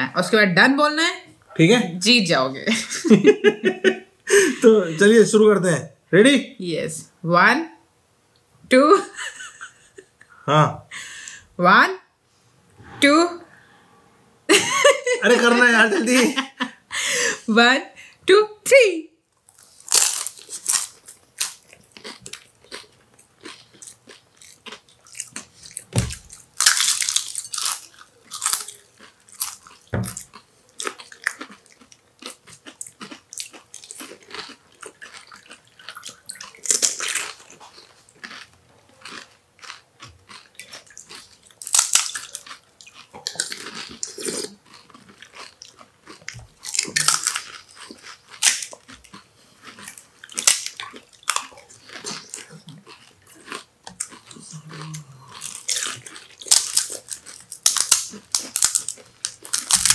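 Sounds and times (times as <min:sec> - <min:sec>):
crunching fried snack shells: 0:19.4 - 0:59.9
dull thumps: 0:29.9 - 0:30.3.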